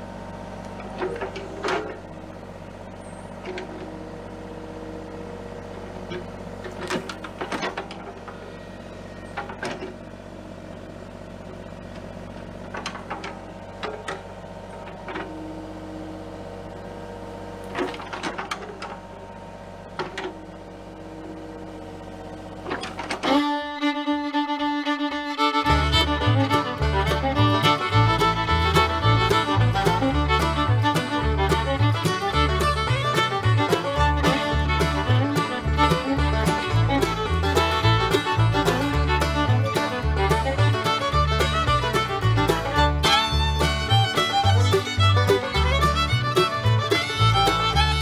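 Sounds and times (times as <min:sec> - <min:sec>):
diesel engine running: 0:00.0 - 0:48.0
excavator bucket clanks: 0:00.7 - 0:02.2, 0:03.3 - 0:04.0, 0:06.0 - 0:08.5, 0:09.3 - 0:10.0, 0:12.5 - 0:15.4, 0:17.6 - 0:19.1, 0:19.9 - 0:20.5, 0:22.6 - 0:23.4
fiddle music: 0:22.7 - 0:48.0.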